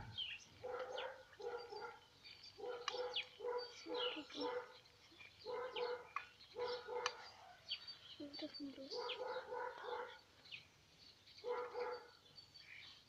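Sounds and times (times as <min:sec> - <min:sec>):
small birds chirping: 0:00.0 - 0:13.0
dog barking: 0:00.6 - 0:02.0, 0:02.6 - 0:04.8, 0:05.4 - 0:07.4, 0:08.9 - 0:10.2, 0:11.4 - 0:12.2.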